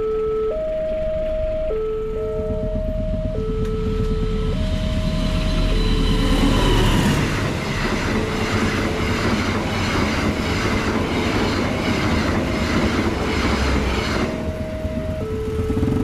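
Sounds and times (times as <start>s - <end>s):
two-tone crossing warning alarm: 0.0s - 16.0s
train wheels clacking on rails: 2.4s - 16.0s.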